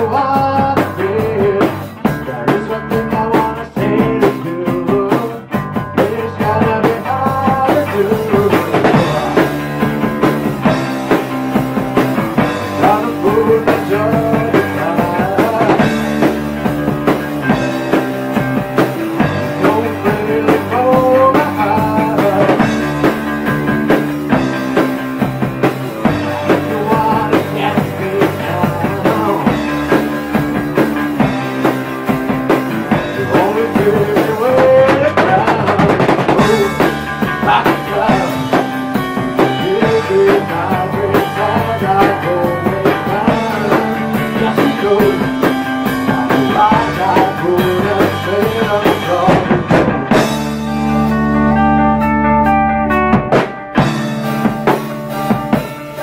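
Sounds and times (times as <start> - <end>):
hard rock band playing: 0.0 - 56.0.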